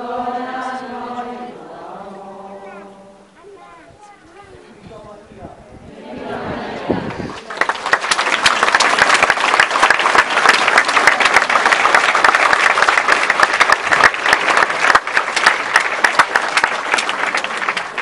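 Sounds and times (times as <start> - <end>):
crowd applauding: 7.3 - 18.0.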